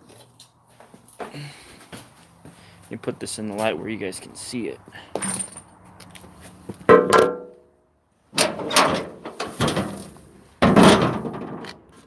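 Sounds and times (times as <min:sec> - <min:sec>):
scuff against microphone: 0:05.9 - 0:06.9
sharp ringing knock: 0:06.9 - 0:07.6.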